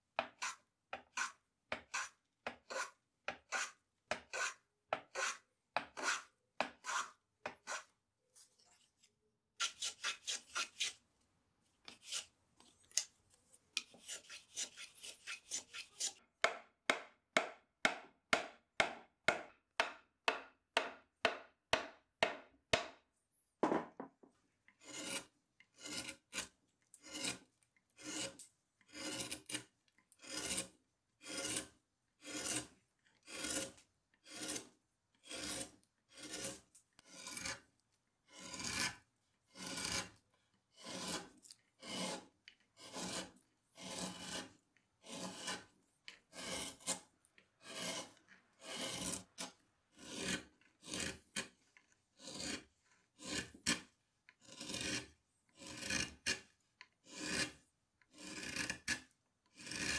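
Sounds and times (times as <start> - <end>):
hand tools scraping wood: 0.2 - 7.9, 9.6 - 11.0, 11.8 - 12.3, 13.8 - 16.2, 24.8 - 37.7, 38.3 - 40.1, 40.7 - 59.9.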